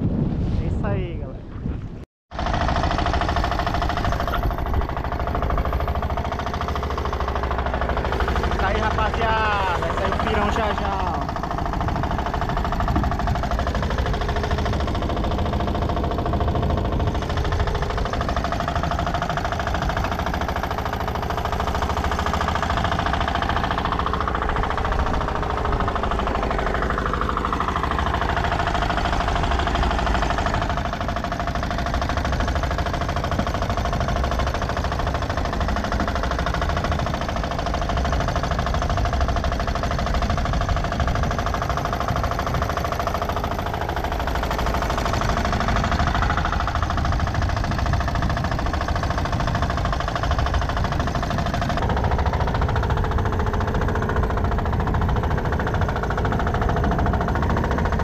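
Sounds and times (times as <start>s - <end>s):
rush of wind and water: 0.0s - 21.7s
boat motor running: 0.1s - 58.0s.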